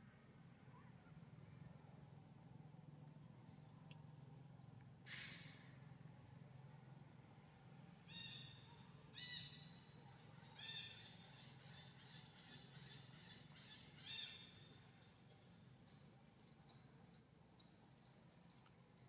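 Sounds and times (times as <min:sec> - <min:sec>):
macaque squeaky calls: 0:08.1 - 0:14.6.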